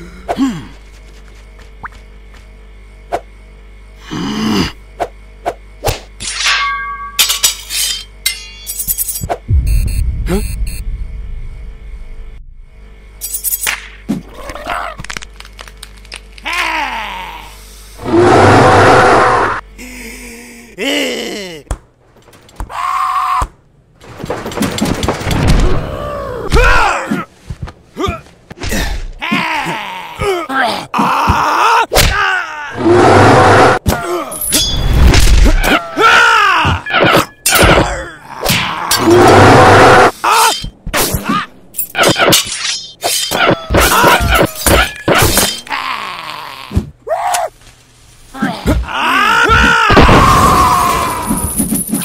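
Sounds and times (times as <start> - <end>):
cartoon yells and grunts: 29.2 - 32.9, 48.4 - 51.4
loud cry: 48.4 - 51.4.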